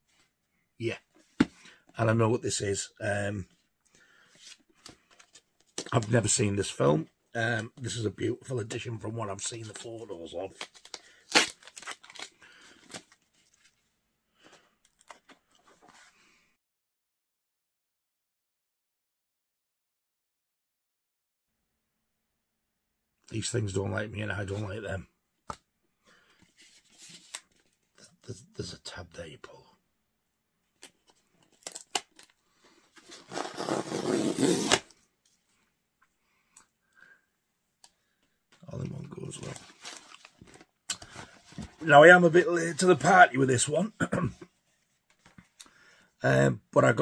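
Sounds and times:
packaging rustling and crinkling: 0:10.5 - 0:13.8, 0:39.0 - 0:41.9
cardboard tearing: 0:10.6 - 0:13.1, 0:33.0 - 0:34.9.

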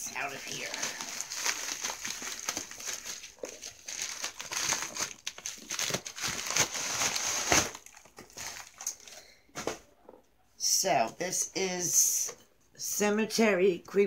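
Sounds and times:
plastic mailer crinkling: 0:00.0 - 0:09.2.

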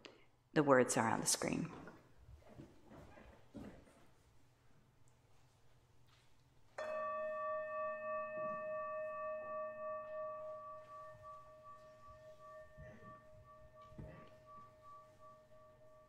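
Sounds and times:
singing bowl ringing: 0:06.8 - 0:16.0.

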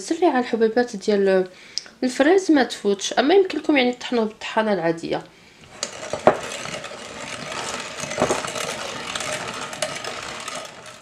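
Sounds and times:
food mill mechanism clicks: 0:05.6 - 0:11.0
food mill wet scraping: 0:05.6 - 0:11.0.

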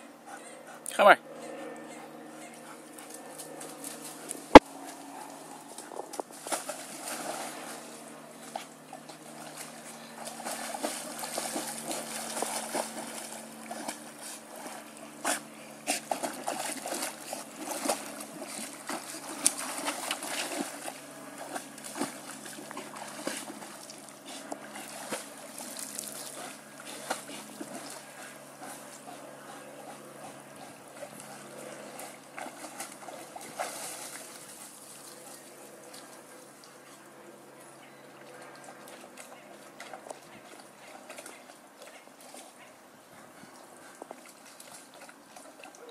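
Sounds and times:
dog splashing in water: 0:03.1 - 0:36.3.

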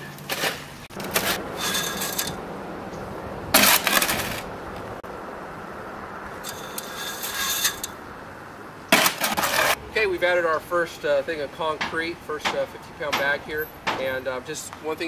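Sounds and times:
wet concrete scraping and rushing: 0:00.2 - 0:02.4, 0:03.5 - 0:04.5, 0:06.4 - 0:07.9, 0:08.9 - 0:09.8
steady low hum: 0:00.7 - 0:08.9.

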